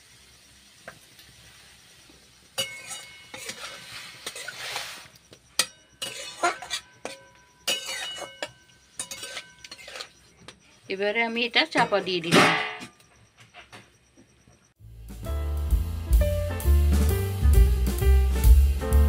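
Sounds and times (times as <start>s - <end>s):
spatula scraping metal pan: 2.6s - 10.3s.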